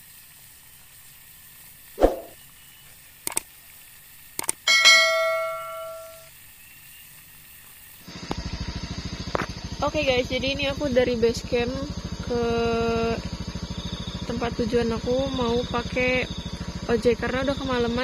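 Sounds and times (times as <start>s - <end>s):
steady hiss: 0.0s - 10.2s
sharp hit sound effect: 2.0s - 2.4s
double mouse clicks: 4.4s - 4.6s
bell chime: 4.7s - 6.3s
motorcycle engine pulsing: 8.1s - 18.0s.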